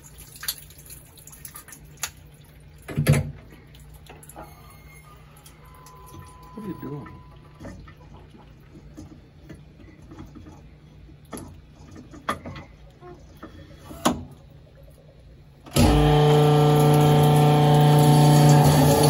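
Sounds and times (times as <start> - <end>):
honing machine humming: 4.6 - 7.6, 15.7 - 19.0.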